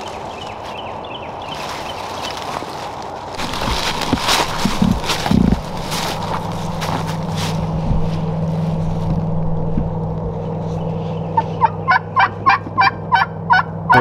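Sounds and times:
low hum: 3.3s - 14.0s
turkey yelping: 10.6s - 14.0s.

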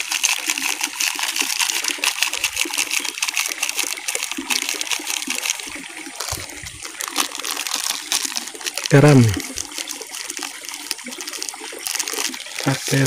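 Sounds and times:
fine crackle: 0.0s - 13.0s
splashing trickling water: 0.0s - 13.0s.

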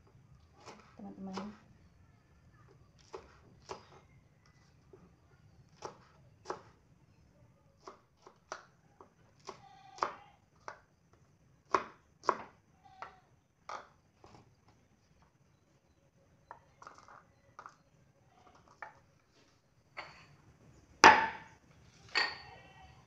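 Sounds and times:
knife striking cutting board: 21.0s - 21.5s.

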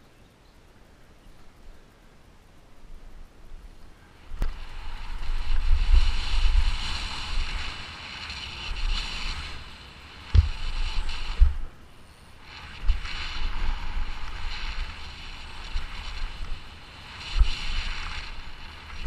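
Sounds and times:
wind rushing over microphone: 3.0s - 19.0s
bike thumping over bumps: 10.2s - 11.7s.

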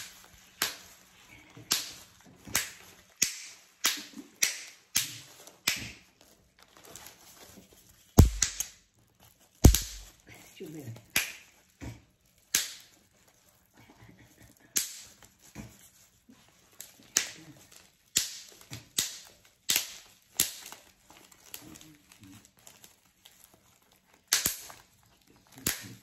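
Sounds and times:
bubble wrap crinkling: 5.3s - 10.2s, 15.1s - 26.0s
bubble wrap snapping: 8.2s - 8.7s, 9.6s - 10.1s, 16.6s - 26.0s.

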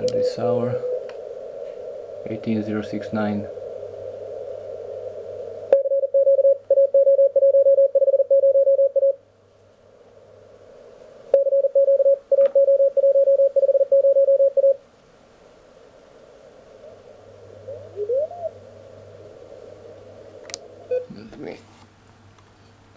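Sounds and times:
receiver hiss: 0.0s - 8.4s, 9.0s - 22.9s
morse code tone: 5.8s - 9.2s, 11.4s - 14.8s.

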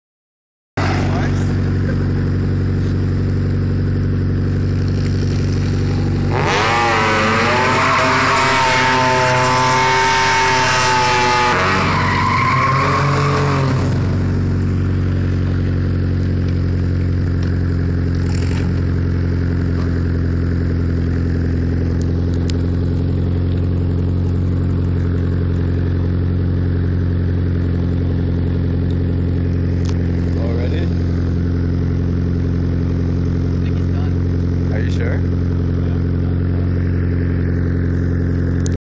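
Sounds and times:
car engine droning: 0.8s - 38.8s
loud tyre squeal: 5.8s - 14.5s.

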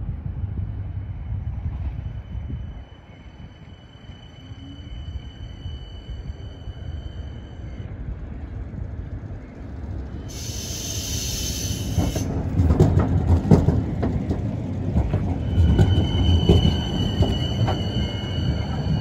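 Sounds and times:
tram rumbling past: 0.0s - 19.0s
high-pitched whine: 1.3s - 12.1s
wheels clicking over track: 11.8s - 18.0s.

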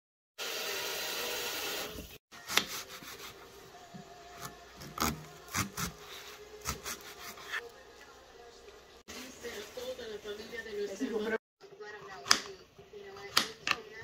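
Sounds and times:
knife peeling onion skin: 2.4s - 3.3s, 4.4s - 7.6s.

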